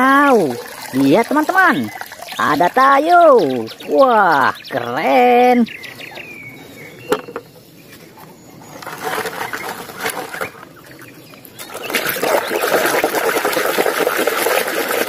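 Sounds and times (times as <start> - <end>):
water splashing and sloshing: 0.0 - 3.9, 8.6 - 15.0
plastic toys rattling in a tub: 8.8 - 10.6.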